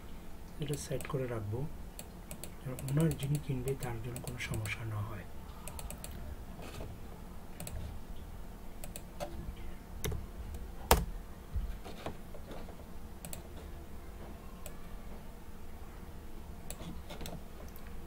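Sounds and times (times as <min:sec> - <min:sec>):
low steady hum: 0:00.0 - 0:18.0
computer keyboard keystrokes: 0:02.0 - 0:04.8, 0:05.6 - 0:06.2, 0:08.8 - 0:09.1, 0:13.2 - 0:13.5.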